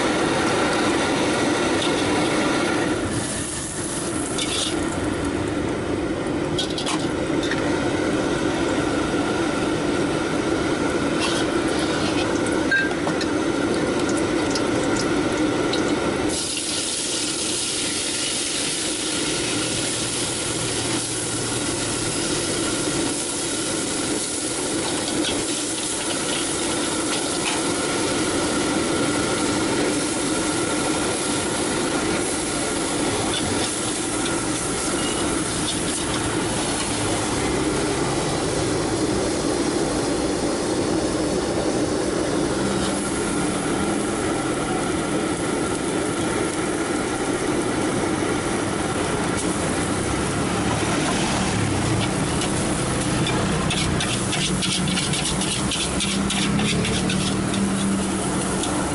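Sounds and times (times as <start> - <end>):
rice sizzling in a wok: 0.0 - 12.6, 13.3 - 58.9
wok burner rushing: 0.0 - 58.9
metal spatula scraping wok: 3.9 - 5.0, 6.6 - 7.6, 11.1 - 12.9, 51.0 - 58.9.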